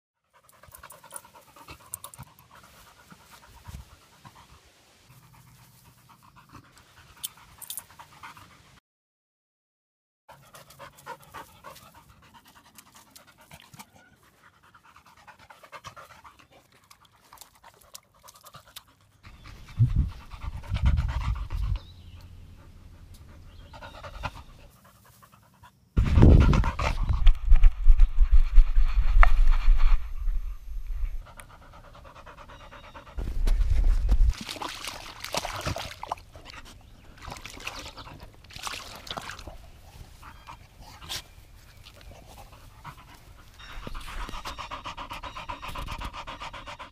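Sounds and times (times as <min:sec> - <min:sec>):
dog panting: 0:00.3 - 0:08.8, 0:10.3 - 0:27.4, 0:31.2 - 0:33.8, 0:39.2 - 0:46.9.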